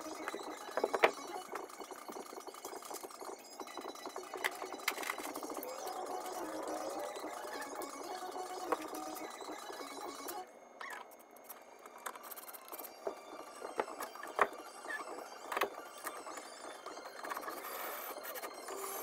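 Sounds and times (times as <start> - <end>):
wood and metal clicks and knocks: 0.2 - 1.7.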